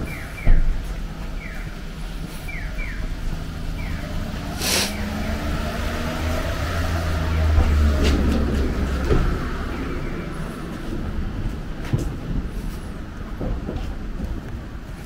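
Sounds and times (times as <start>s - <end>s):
vehicle engine droning: 0.0s - 15.0s
short hiss: 4.6s - 5.0s.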